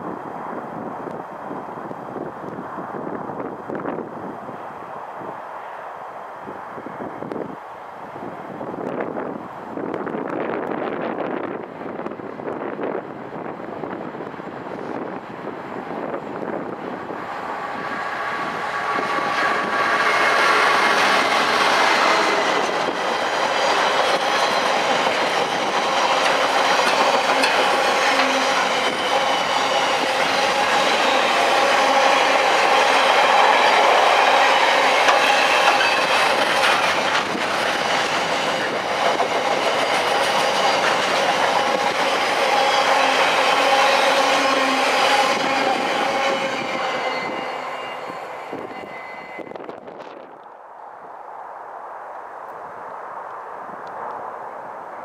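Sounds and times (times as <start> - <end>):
diesel locomotive passing: 0.0 - 55.0
wagons rumbling and clattering on rails: 14.4 - 50.4.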